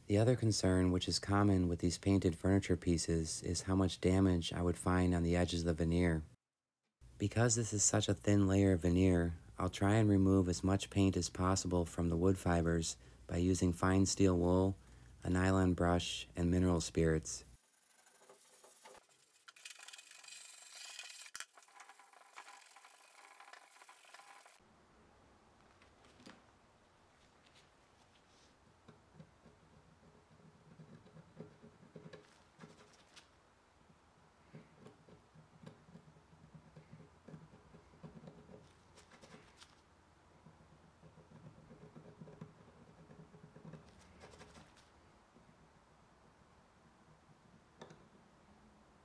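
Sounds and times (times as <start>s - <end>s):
brush scrubbing wood: 17.6s - 21.3s.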